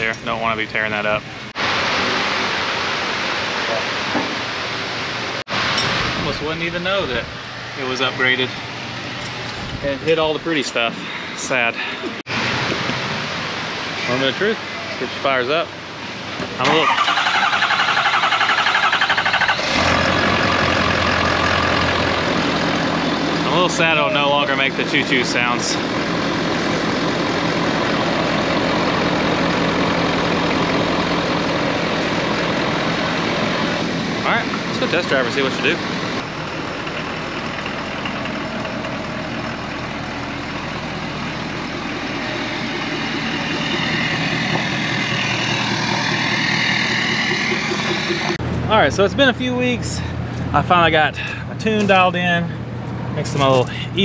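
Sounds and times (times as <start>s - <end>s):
diesel engine idling: 6.4s - 54.0s
diesel engine cranking: 16.4s - 54.0s
high-pitched turbo rushing: 41.7s - 49.7s.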